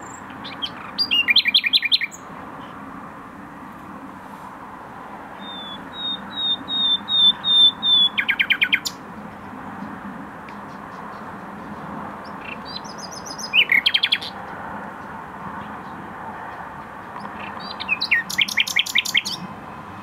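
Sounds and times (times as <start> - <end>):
nightingale singing: 0.0 - 2.8, 5.4 - 9.0, 10.5 - 14.6, 15.6 - 19.5.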